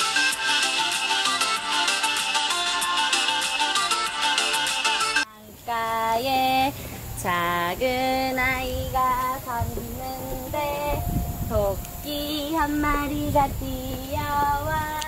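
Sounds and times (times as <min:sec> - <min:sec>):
child singing wordless notes: 0:05.3 - 0:15.0
low rumbling noise: 0:05.5 - 0:15.0.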